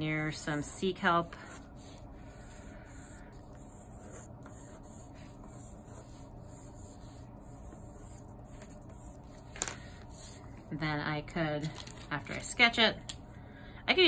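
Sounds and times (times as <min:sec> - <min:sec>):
pencil scratching on paper: 0:00.6 - 0:09.5.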